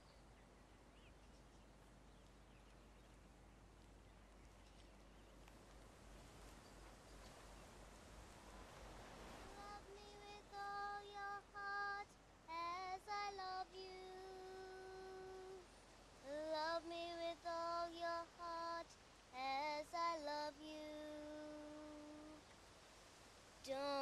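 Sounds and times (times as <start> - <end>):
person singing unaccompanied: 9.3 - 22.4, 23.6 - 24.0.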